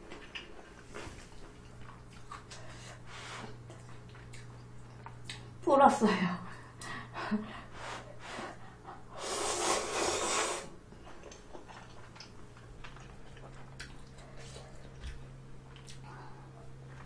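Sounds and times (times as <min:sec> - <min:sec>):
chewing: 0:00.0 - 0:02.8, 0:03.5 - 0:05.5, 0:11.0 - 0:17.0
loud noodle slurp: 0:09.2 - 0:10.7.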